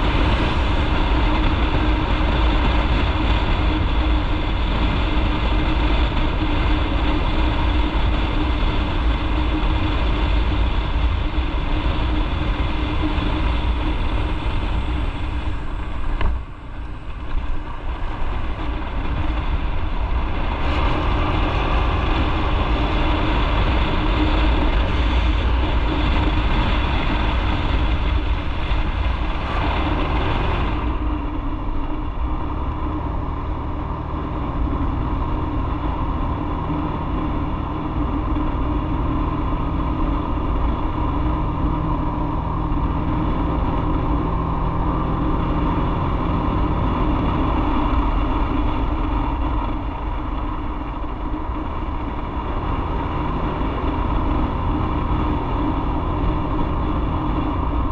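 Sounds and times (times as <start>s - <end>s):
motorcycle engine running: 0.0s - 57.9s
wind on microphone: 0.0s - 57.9s.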